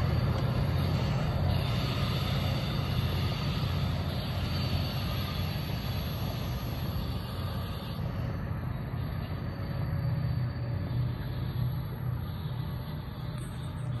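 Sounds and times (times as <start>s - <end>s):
train rumbling: 0.0s - 14.0s.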